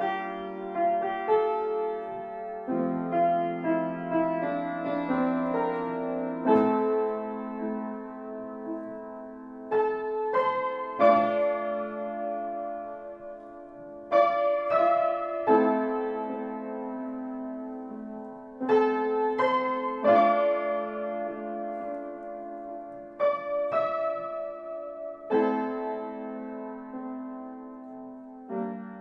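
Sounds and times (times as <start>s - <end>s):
slow piano music: 0.0s - 29.0s.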